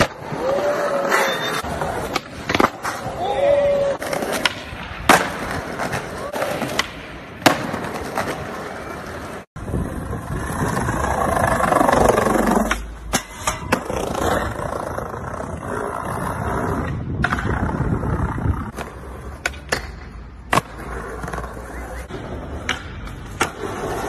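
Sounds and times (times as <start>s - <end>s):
skateboard wheels rolling on pavement: 0.0s - 24.0s
skateboard clacks: 18.7s - 24.0s.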